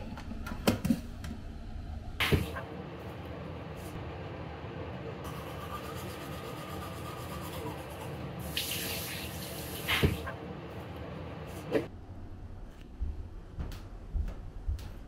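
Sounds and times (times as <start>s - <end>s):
tap water running into a basin: 8.4s - 9.9s.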